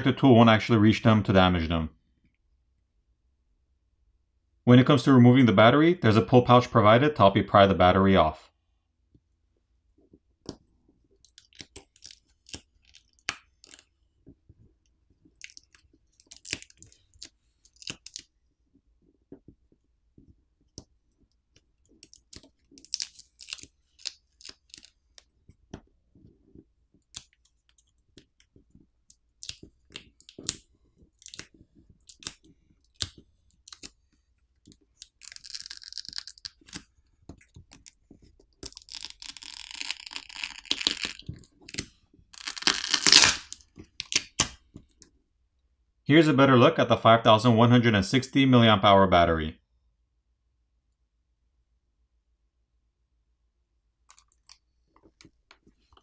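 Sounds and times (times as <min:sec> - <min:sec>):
adhesive film tearing: 0:22.0 - 0:25.0, 0:35.0 - 0:36.8, 0:38.6 - 0:44.6
plastic pouch crackling: 0:22.0 - 0:25.1, 0:29.4 - 0:34.0, 0:34.7 - 0:36.9, 0:37.5 - 0:44.5.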